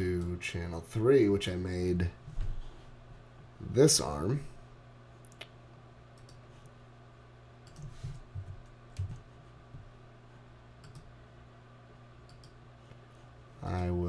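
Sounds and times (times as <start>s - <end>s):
faint low hum: 0.0s - 14.0s.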